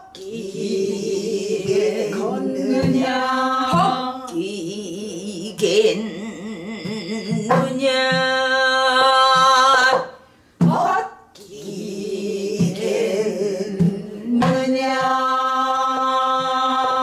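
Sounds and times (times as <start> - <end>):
barrel drum strokes: 1.5 - 4.2.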